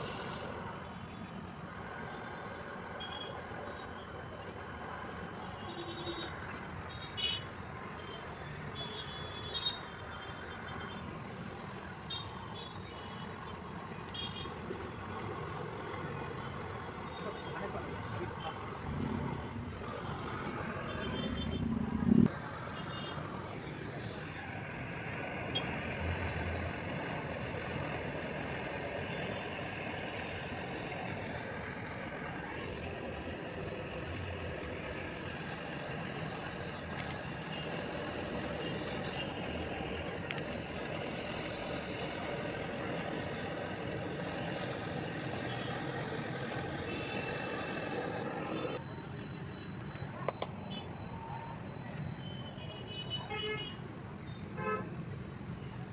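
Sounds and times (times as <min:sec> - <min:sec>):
gas torch hissing: 0:00.0 - 0:01.0, 0:11.1 - 0:48.8.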